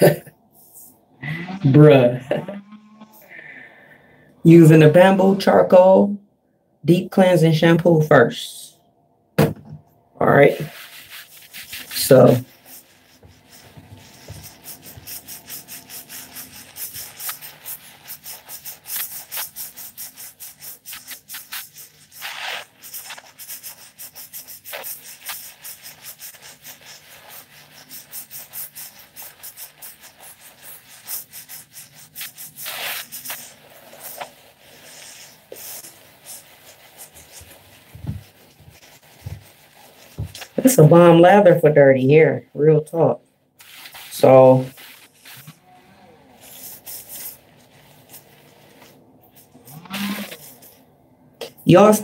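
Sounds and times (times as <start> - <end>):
wet rubbing of shampoo lather: 0.0 - 3.5, 10.2 - 50.9
longer swishes: 0.6 - 3.9.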